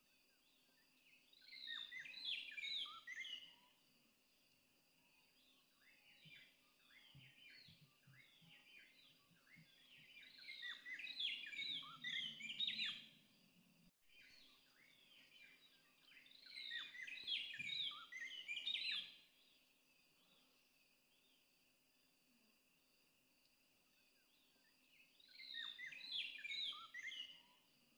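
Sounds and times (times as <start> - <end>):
faint high insect whine: 0.0 - 27.9.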